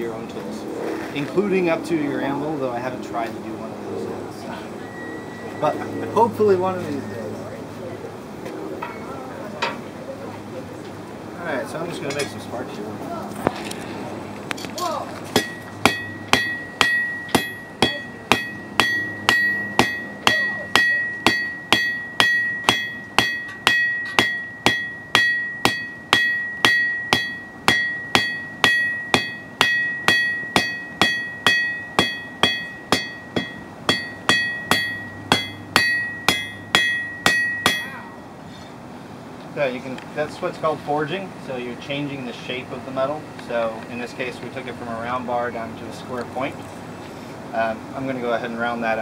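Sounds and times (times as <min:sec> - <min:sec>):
hammer striking hot steel: 0:15.3 - 0:38.0
anvil ringing: 0:15.3 - 0:38.1.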